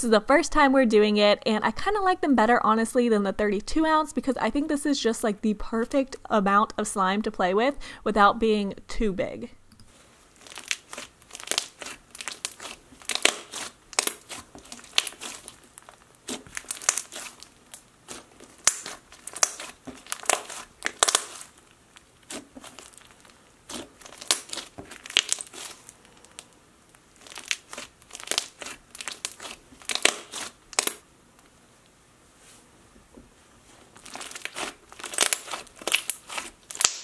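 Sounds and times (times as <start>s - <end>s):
slime squeezed with wet pops: 10.4s - 21.6s, 27.2s - 31.0s, 34.1s - 37.0s.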